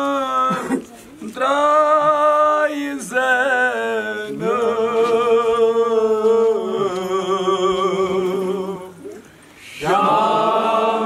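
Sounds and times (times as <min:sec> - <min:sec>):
men chanting a lament: 0:09.7 - 0:11.0.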